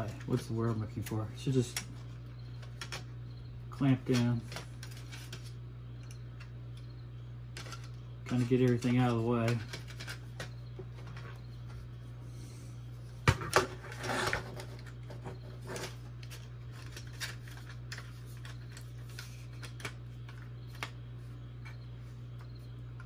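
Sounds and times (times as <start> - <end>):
steady low hum: 0.0 - 23.0
plastic parts clacking: 7.5 - 11.4
plastic rubbing scrape: 13.6 - 19.3.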